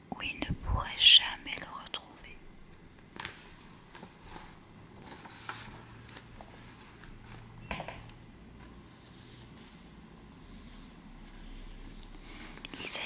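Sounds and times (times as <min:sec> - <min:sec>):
paper rustling and crinkling: 0:03.1 - 0:07.5.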